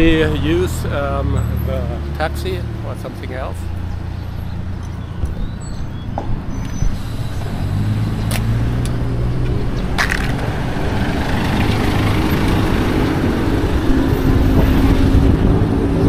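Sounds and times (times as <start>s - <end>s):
vehicle approaching: 0.0s - 16.0s
vehicle engine humming: 0.0s - 16.0s.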